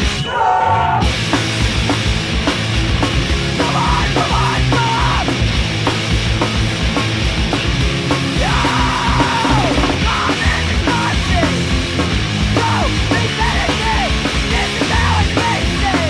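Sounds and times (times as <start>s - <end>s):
punk rock band playing: 0.0s - 16.0s
person yelling vocals: 3.6s - 5.3s, 8.4s - 11.6s.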